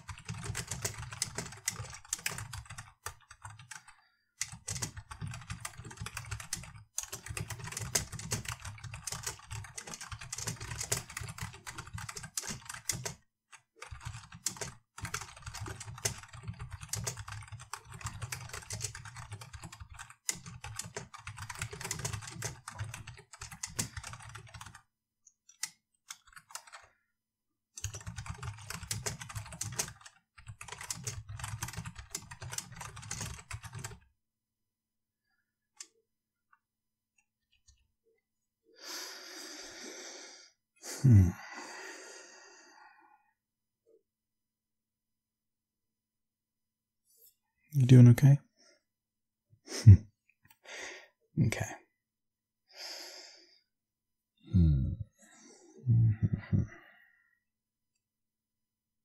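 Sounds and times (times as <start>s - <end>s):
typing on computer keyboard: 0.0s - 24.9s, 25.5s - 26.9s, 27.8s - 34.1s.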